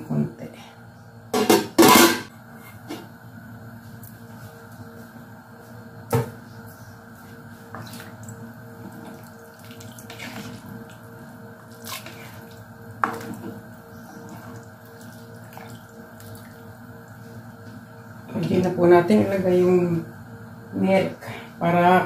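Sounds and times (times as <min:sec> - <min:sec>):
ladle stirring soup sloshing: 0:06.7 - 0:18.2.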